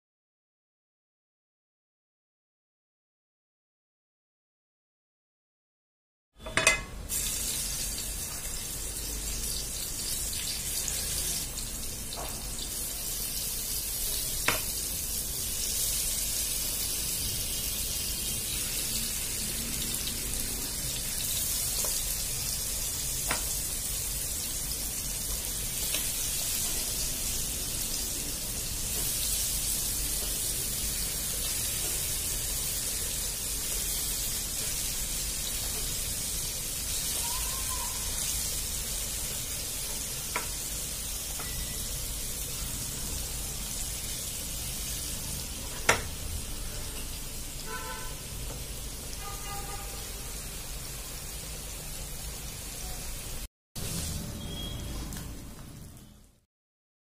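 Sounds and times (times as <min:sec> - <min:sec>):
fish sizzling in oil: 0:06.5 - 0:56.4.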